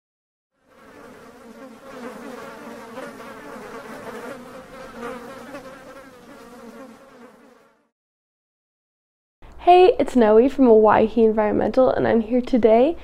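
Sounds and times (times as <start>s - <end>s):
insects buzzing: 0.6s - 7.9s.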